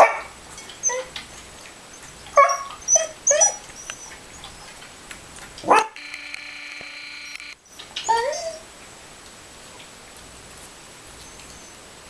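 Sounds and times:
dog whimpering and yipping: 0.7 - 4.8, 7.9 - 8.7.

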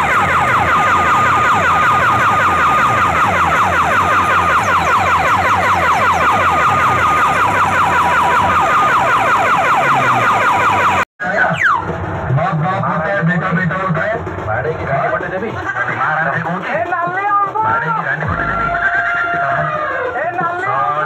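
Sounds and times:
siren-like electronic effect: 0.0 - 13.7, 18.1 - 21.0
pulsing bass beat: 0.0 - 20.6.

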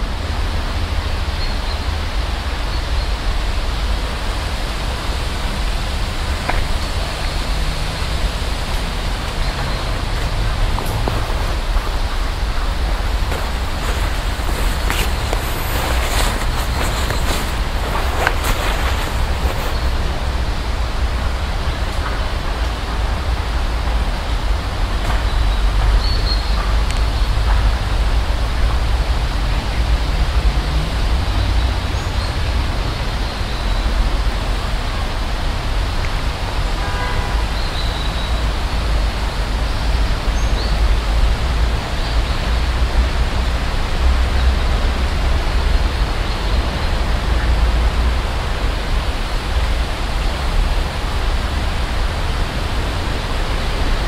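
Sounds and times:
road traffic: 0.0 - 54.0
wind buffeting microphone: 2.0 - 25.9.

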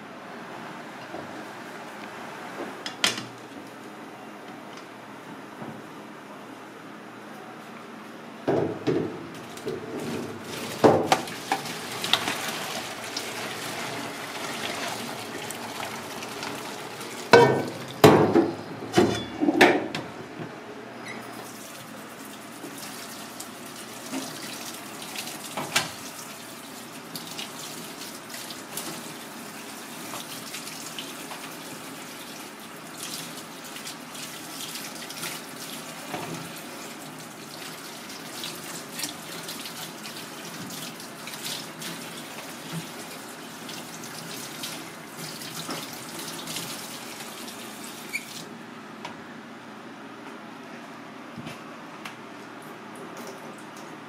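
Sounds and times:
water draining into colander: 9.5 - 18.2
kitchen tap running: 9.5 - 18.5, 21.5 - 48.5
metal pot clanking on sink: 17.3 - 18.5.

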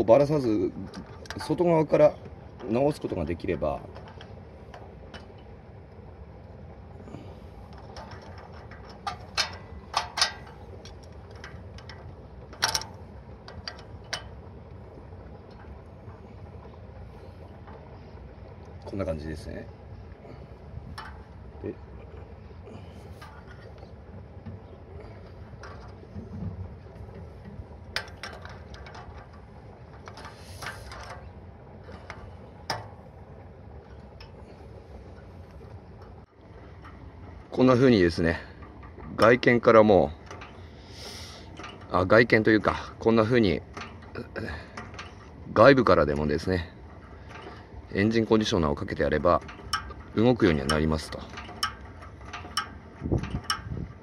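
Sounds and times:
steady low hum: 0.0 - 54.0
metallic throttle linkage clicks: 7.7 - 14.4, 25.2 - 26.1, 27.1 - 33.1, 36.0 - 54.0
short hiss: 30.3 - 31.0, 40.8 - 41.5.

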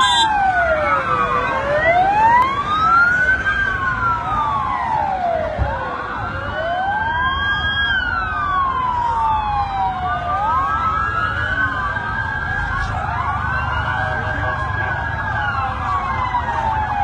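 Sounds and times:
emergency sirens wailing: 0.0 - 17.0.

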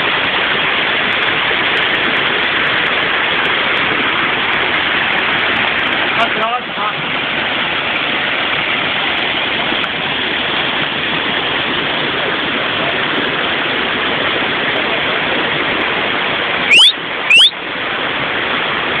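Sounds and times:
small waterfall rushing: 0.0 - 19.0
short rising chirps: 16.7 - 17.6.

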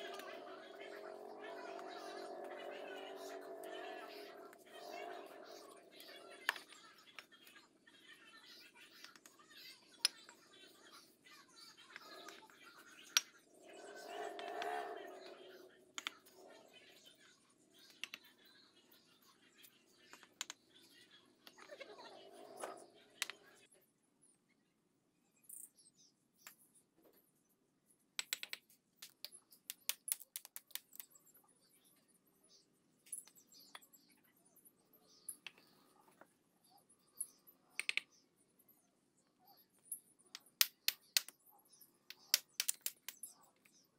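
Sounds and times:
small birds chirping: 29.8 - 43.9.

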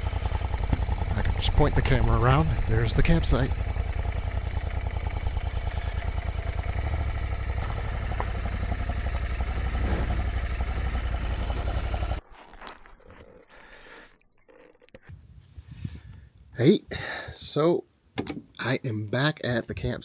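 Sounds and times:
motorcycle engine running: 0.0 - 12.2.

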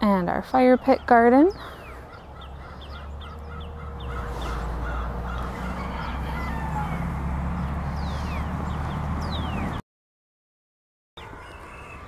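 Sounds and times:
farmyard fowl calling: 0.6 - 8.6, 11.2 - 12.0
high falling bird chirps: 0.8 - 9.8.

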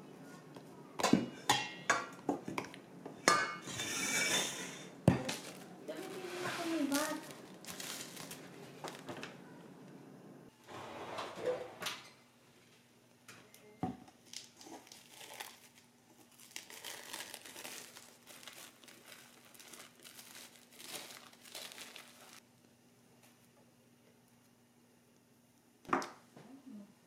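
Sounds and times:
wrapping crinkling and rustling: 5.3 - 9.4, 14.2 - 22.4.

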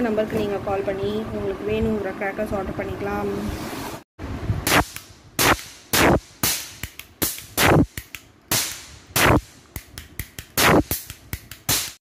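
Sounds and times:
cap gun cracks: 4.7 - 12.0.

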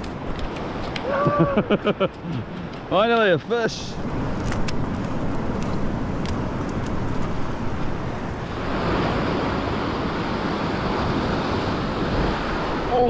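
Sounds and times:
surf washing over rocks: 0.0 - 13.0
wind rumbling on microphone: 0.0 - 13.0
faint clicks: 2.0 - 3.3.

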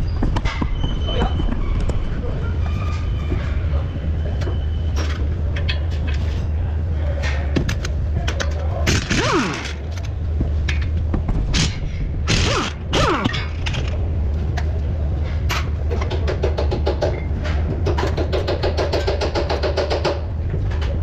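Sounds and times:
steady low hum: 0.0 - 21.0
impact wrench whirring: 8.9 - 10.1, 11.5 - 14.0.

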